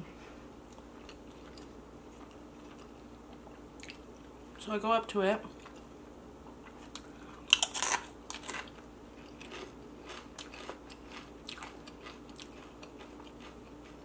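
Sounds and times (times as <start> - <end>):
tortilla chip crunching: 6.9 - 14.0.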